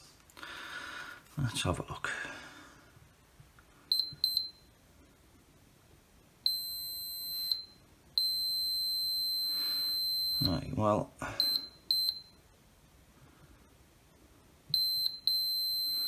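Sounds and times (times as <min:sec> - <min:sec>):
multimeter continuity beeping: 0:03.9 - 0:04.8, 0:06.4 - 0:10.7, 0:11.4 - 0:12.5, 0:14.7 - 0:16.0.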